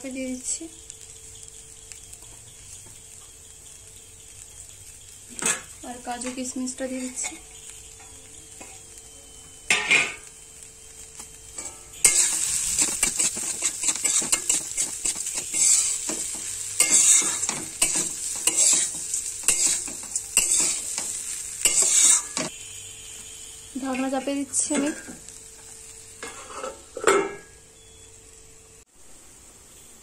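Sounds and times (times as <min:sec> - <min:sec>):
frying sizzle: 0:00.0 - 0:30.0
metal spatula scraping pan: 0:06.9 - 0:07.5, 0:11.6 - 0:22.5, 0:26.2 - 0:27.4.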